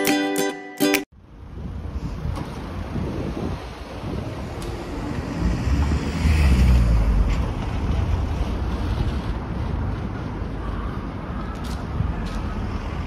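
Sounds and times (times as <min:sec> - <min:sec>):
street noise: 0:01.1 - 0:13.0
wind buffeting microphone: 0:01.2 - 0:13.0
car passing: 0:01.6 - 0:11.3.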